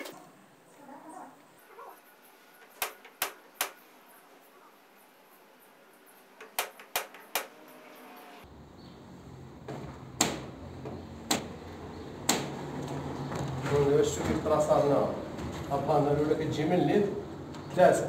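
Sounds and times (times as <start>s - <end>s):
sharp knocks: 9.7s - 11.6s, 12.2s - 12.6s.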